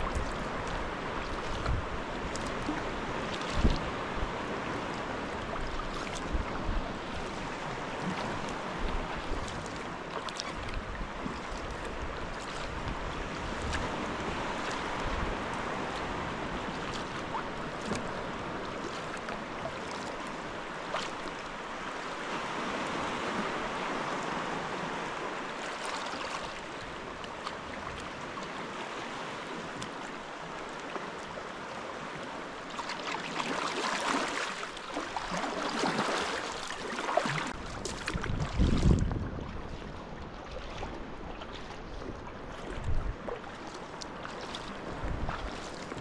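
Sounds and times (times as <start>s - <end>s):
small splashes and drips: 0.0s - 3.9s, 9.2s - 12.7s, 16.7s - 20.3s, 32.7s - 39.0s, 40.4s - 46.0s
water lapping around kayak: 0.0s - 46.0s.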